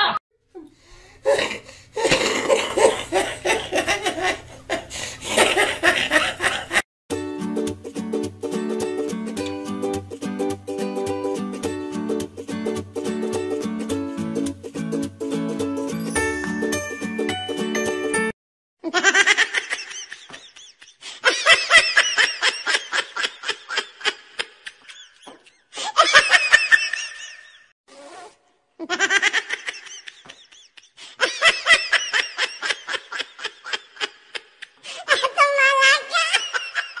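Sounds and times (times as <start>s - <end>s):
person laughing: 1.3s - 6.8s, 18.8s - 27.6s, 28.8s - 35.4s
music snippet: 15.8s - 18.3s.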